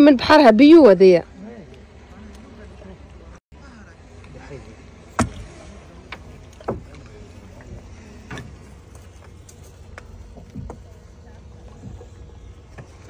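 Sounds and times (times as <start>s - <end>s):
sharp knocks and clicks: 5.1s - 11.0s.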